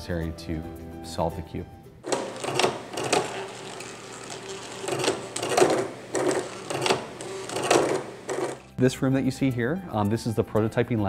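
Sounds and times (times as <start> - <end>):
stepper motors whirring: 2.0 - 8.8.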